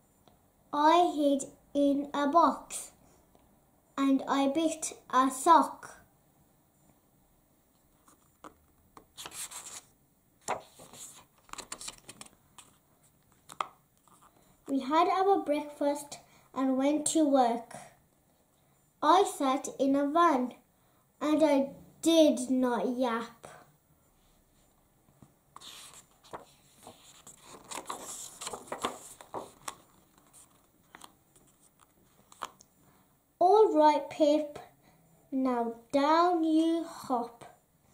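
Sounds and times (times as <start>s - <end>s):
paper page rustling: 8.0s - 14.4s, 25.6s - 32.6s.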